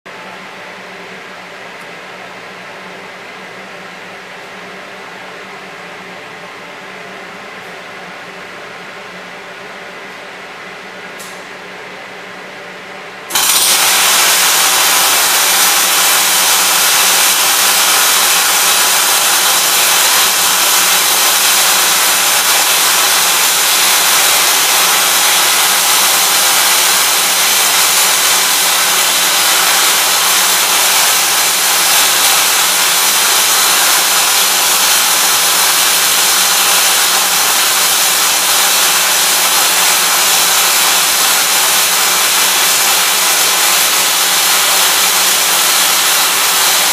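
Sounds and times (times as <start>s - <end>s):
welding arc hissing: 13.3s - 46.9s.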